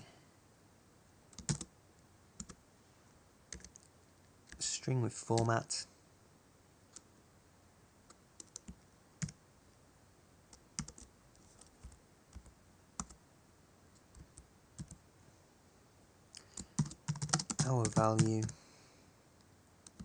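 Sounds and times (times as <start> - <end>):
slow typing on keyboard: 1.3 - 1.7, 2.4 - 2.6, 3.5 - 3.9, 8.1 - 9.4, 10.5 - 13.2, 14.0 - 15.0, 16.3 - 18.6.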